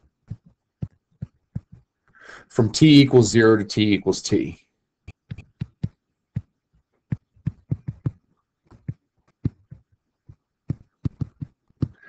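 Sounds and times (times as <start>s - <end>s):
stylus tapping on writing surface: 0.3s - 1.8s, 7.1s - 12.0s.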